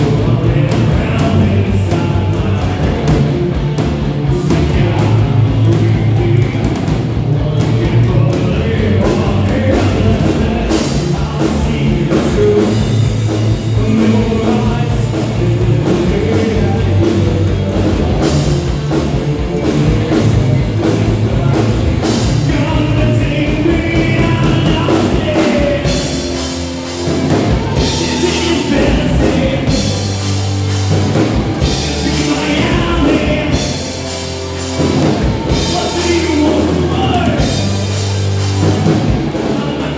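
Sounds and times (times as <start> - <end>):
live rock band playing: 0.0 - 39.9.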